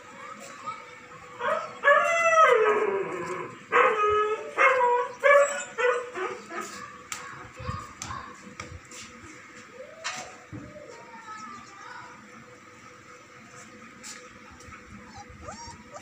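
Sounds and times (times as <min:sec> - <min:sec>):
dog howling calls: 0:01.4 - 0:06.4.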